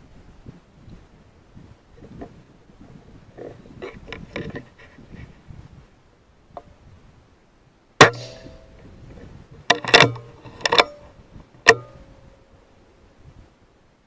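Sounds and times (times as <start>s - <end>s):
air rifle shot: 8.0s - 8.7s
sharp knocks and clicks: 9.7s - 11.0s.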